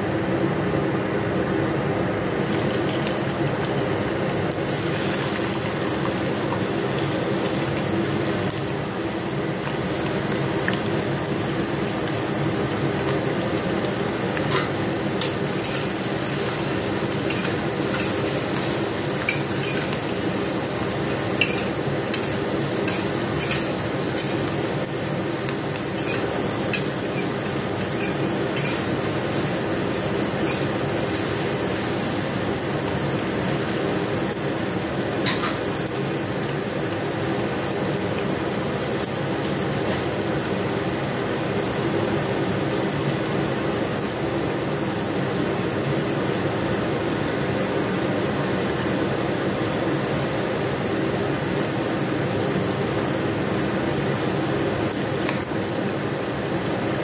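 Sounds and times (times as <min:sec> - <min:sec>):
vegetables sizzling in a wok: 0:00.0 - 0:57.0
metal spatula scraping a wok: 0:15.6 - 0:16.6, 0:17.3 - 0:18.3, 0:21.4 - 0:24.4, 0:26.0 - 0:28.9, 0:30.4 - 0:30.7.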